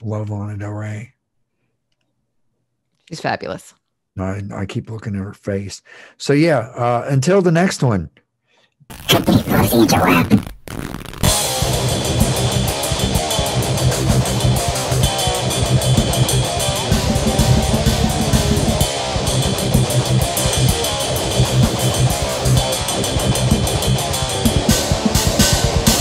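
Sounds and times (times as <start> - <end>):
rock music with guitar and drums: 10.8 - 26.0.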